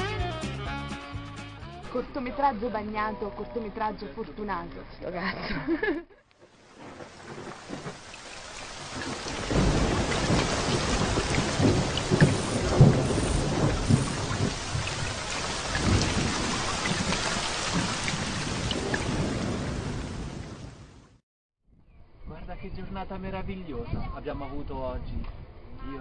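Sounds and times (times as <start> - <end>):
heavy rain falling: 6.5 - 21.1
low rumbles: 6.5 - 21.1.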